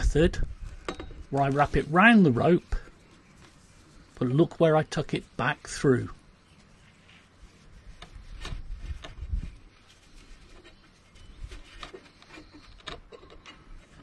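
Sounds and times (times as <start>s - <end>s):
wind rumble on microphone: 0.0s - 1.3s, 8.1s - 9.7s
rope rustling and rubbing: 0.0s - 14.0s.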